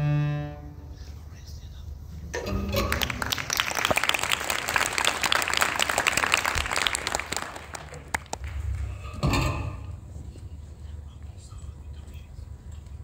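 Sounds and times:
audience applause: 0:02.8 - 0:09.0.

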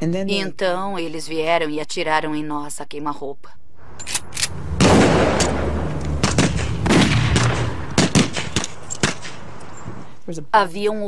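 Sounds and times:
low steady rumble: 0:03.6 - 0:10.1
gunshots: 0:04.1 - 0:09.6.

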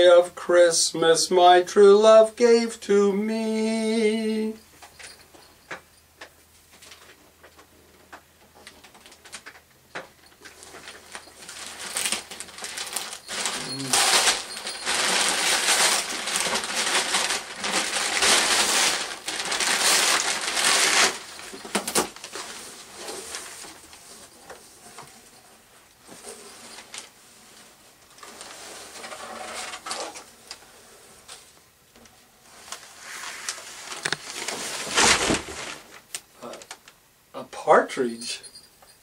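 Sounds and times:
wrapping paper tearing and crinkling: 0:10.6 - 0:24.0, 0:32.7 - 0:36.8.

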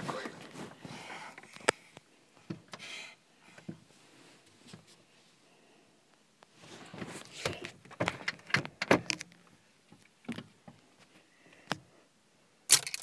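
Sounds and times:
rustling: 0:00.0 - 0:01.8, 0:06.4 - 0:11.3.

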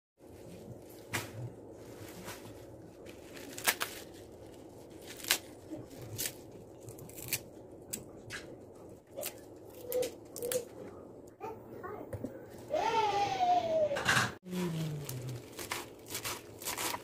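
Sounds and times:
steady low hum: 0:00.2 - 0:17.0
kale leaves tearing: 0:01.9 - 0:08.0, 0:09.1 - 0:10.7, 0:14.5 - 0:17.0.

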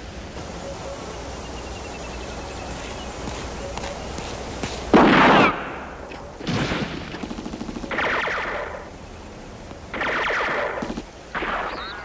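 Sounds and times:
automatic gunfire bursts: 0:04.6 - 0:08.9, 0:09.9 - 0:12.0.

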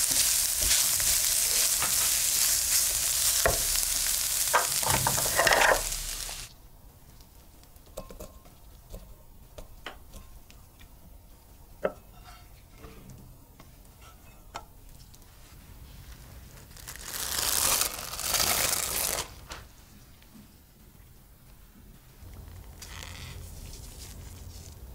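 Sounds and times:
spatula scraping frying pan: 0:00.0 - 0:06.5
cling wrap crinkling: 0:16.5 - 0:19.5.

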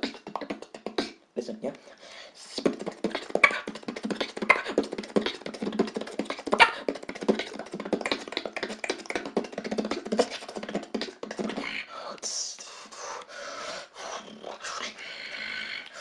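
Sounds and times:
beatboxing: 0:00.0 - 0:01.2, 0:02.4 - 0:13.1.

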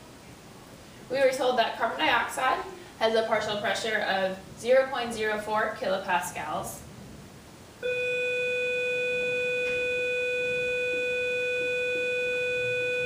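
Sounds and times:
steady electronic beep tone: 0:07.8 - 0:13.0.

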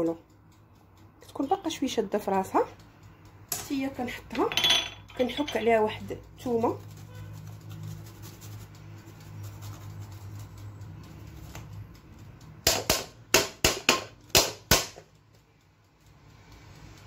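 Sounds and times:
garlic grated on metal grater: 0:05.3 - 0:11.6.

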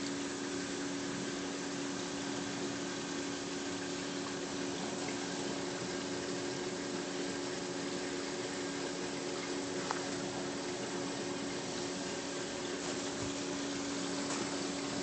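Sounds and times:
aquarium pump water hissing: 0:00.0 - 0:15.0
pump low hum: 0:00.0 - 0:15.0.

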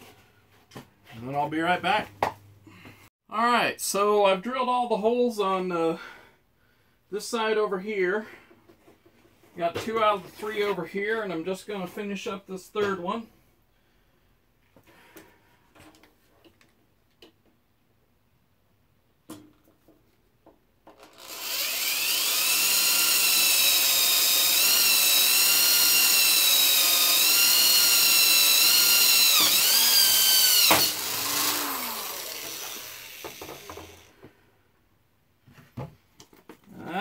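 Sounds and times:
electric drill boring metal: 0:21.0 - 0:34.1.

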